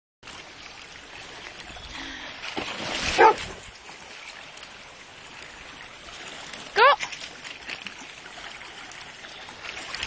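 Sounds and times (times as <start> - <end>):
water splashing: 0.2 - 10.0
dog barking loudly: 3.2 - 3.4.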